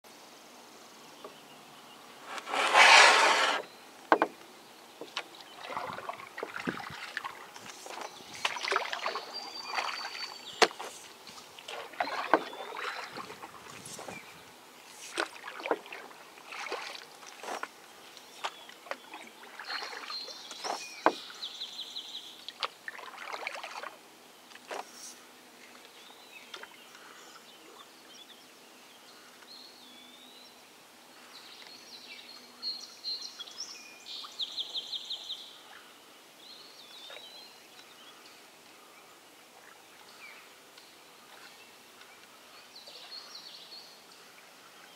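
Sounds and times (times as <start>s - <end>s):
paddle swishing through water: 2.2s - 4.4s, 5.0s - 21.6s, 22.2s - 26.8s, 41.2s - 43.5s
knocks against canoe hull: 4.1s - 4.4s.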